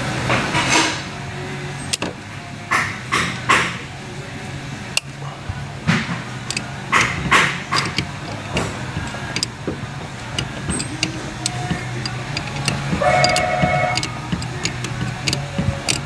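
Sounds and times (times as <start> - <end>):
ratchet wrench clicking: 5.0 - 5.2, 6.5 - 16.0
metal tools clinking: 6.3 - 16.0.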